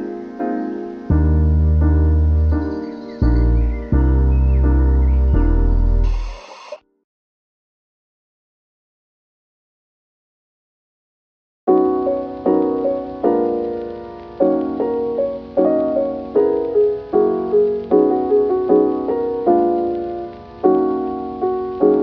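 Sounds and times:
calm piano music: 0.0 - 6.4, 11.7 - 22.0.

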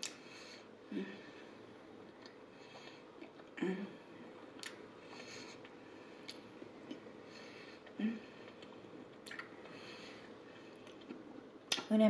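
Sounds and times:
person chewing food: 4.4 - 9.8, 10.8 - 11.8
wet mouth clicks and smacks: 5.6 - 7.0, 8.5 - 9.5, 10.8 - 11.9.

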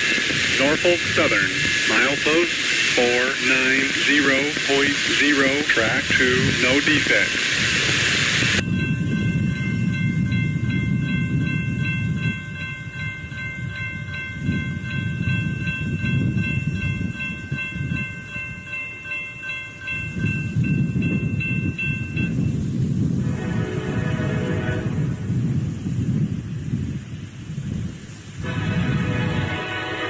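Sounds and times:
crossing warning bell ringing: 8.6 - 24.8.

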